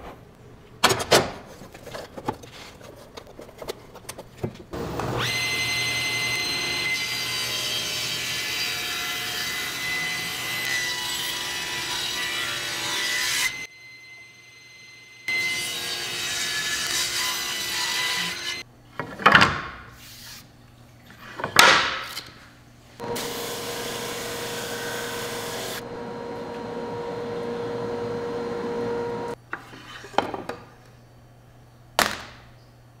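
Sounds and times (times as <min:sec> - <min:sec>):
table saw cutting wood: 0:04.8 - 0:13.7, 0:15.3 - 0:18.6, 0:23.0 - 0:29.4
drum sander running: 0:23.0 - 0:29.4.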